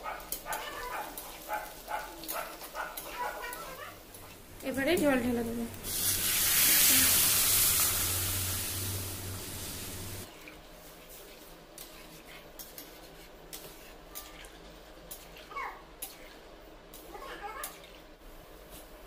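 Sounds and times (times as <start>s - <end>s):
water hissing in hot oil: 3.9s - 12.3s.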